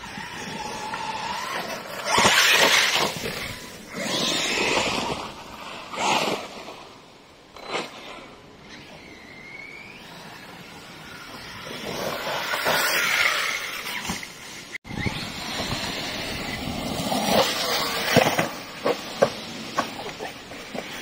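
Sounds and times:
tyre noise on rough ground: 7.6s - 21.0s.

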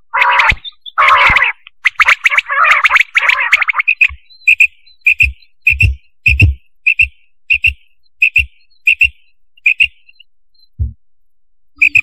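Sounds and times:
quail calling: 0.0s - 5.9s.

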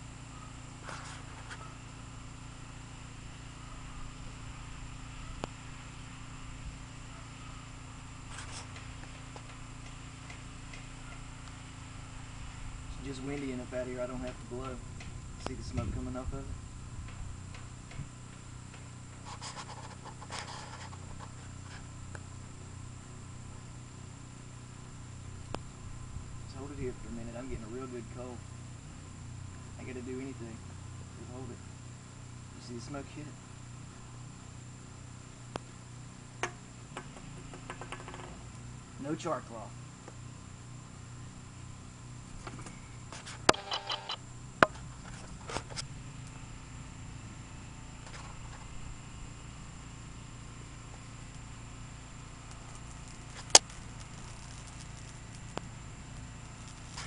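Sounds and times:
steady low hum: 0.0s - 57.0s
fingers rustling dry grass: 19.2s - 21.9s, 52.4s - 57.0s.

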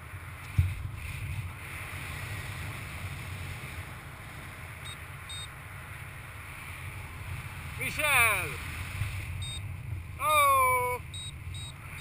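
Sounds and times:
wind buffeting microphone: 0.0s - 12.0s
short high beeps: 4.8s - 5.5s, 9.4s - 9.6s, 10.6s - 12.0s.

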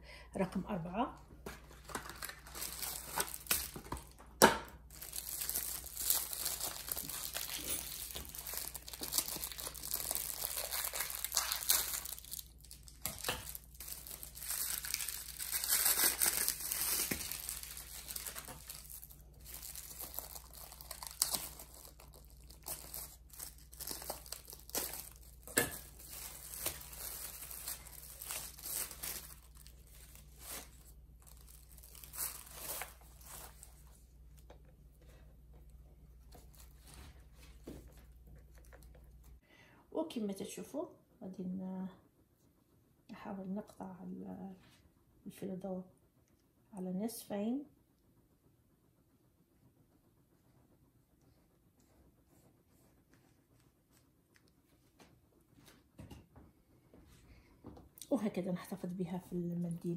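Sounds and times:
pastry packet crinkling: 1.6s - 4.2s, 4.8s - 34.5s.

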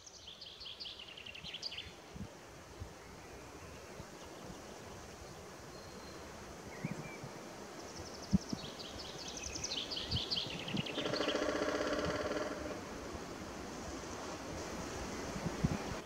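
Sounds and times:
woodpecker drumming on tree: 10.8s - 12.8s.

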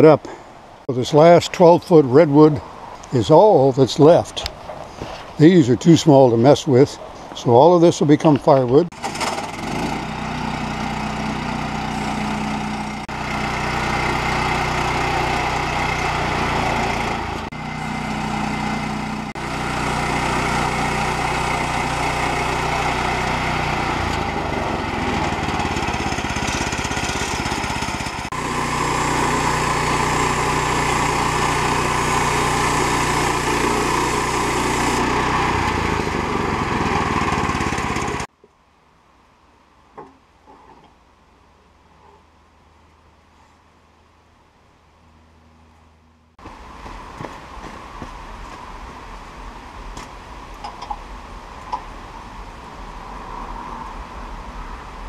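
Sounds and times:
band sawmill engine under load: 0.0s - 38.3s
band blade sawing log: 8.9s - 38.3s.

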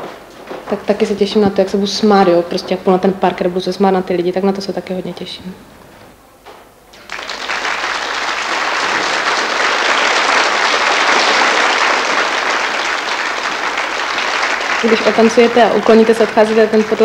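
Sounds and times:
audience applause: 7.0s - 17.0s.

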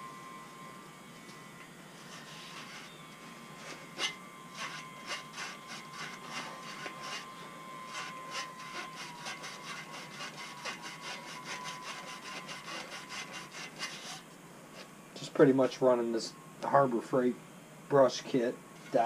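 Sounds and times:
brush scraping inside engine block: 2.0s - 2.9s, 3.6s - 7.3s, 7.9s - 14.2s.

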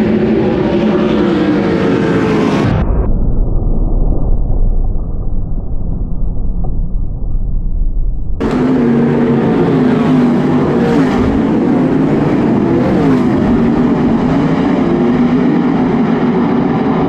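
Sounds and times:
race car engines running hard: 0.0s - 2.8s, 8.4s - 17.0s.

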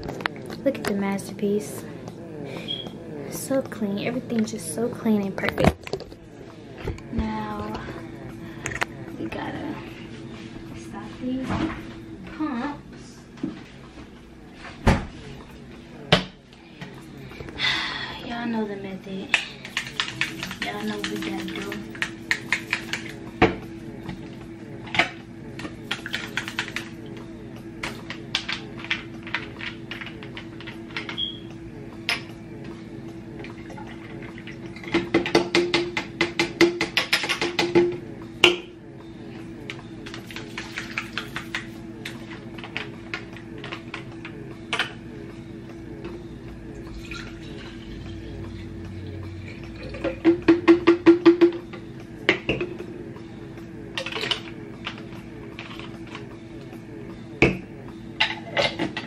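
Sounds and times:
steady low hum: 0.0s - 59.0s
milk pouring: 46.9s - 48.0s.

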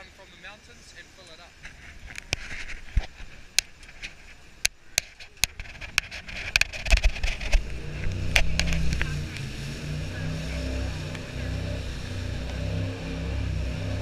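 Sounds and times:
water and wind hissing: 0.0s - 14.0s
sharp clicks and knocks: 2.1s - 9.5s
boat engine drone: 5.7s - 14.0s.

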